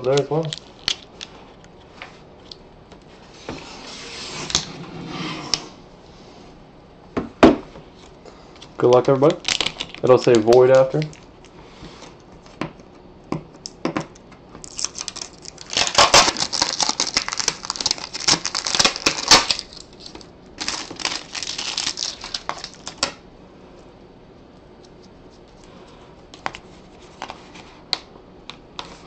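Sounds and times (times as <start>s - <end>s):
tape tearing off cardboard: 14.6s - 20.2s.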